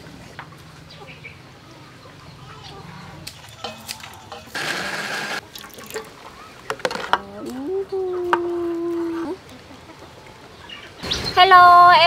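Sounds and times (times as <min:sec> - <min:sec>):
blender whirring: 0:04.6 - 0:05.4.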